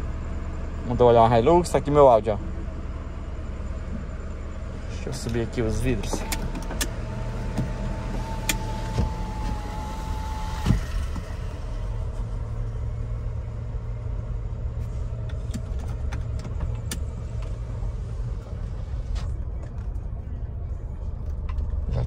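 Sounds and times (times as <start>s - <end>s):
car cabin rumble: 0.0s - 22.0s
power window motor whining: 5.2s - 12.5s.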